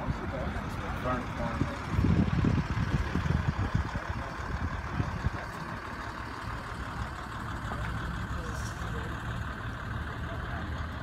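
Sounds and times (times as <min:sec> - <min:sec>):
wind buffeting microphone: 0:00.0 - 0:05.4.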